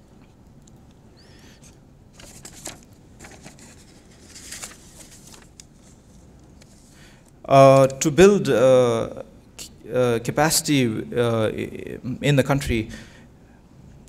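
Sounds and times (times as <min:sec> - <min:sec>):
faint clicks and rustles: 0:01.6 - 0:08.0.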